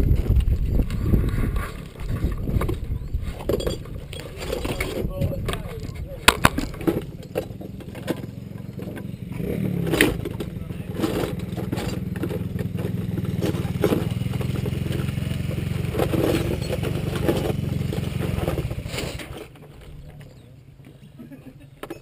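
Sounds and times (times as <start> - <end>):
knocks and clatters: 1.6 - 20.4
small motorcycle engine idling: 6.8 - 20.8.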